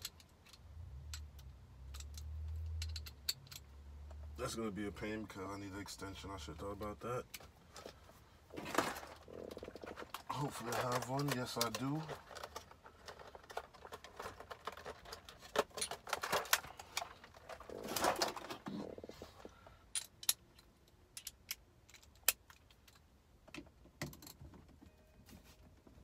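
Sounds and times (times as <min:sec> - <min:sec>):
metal tools clinking in plastic case: 0:00.0 - 0:03.7, 0:07.0 - 0:23.0.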